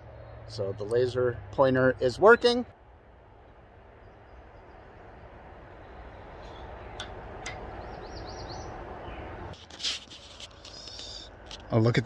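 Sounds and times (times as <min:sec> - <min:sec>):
low rushing background: 0:00.0 - 0:09.6
small bird chirping: 0:04.0 - 0:09.5.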